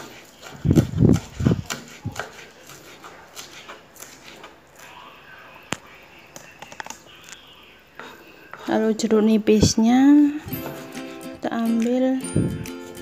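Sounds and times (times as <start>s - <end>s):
knife chopping on wooden board: 0.0s - 4.5s.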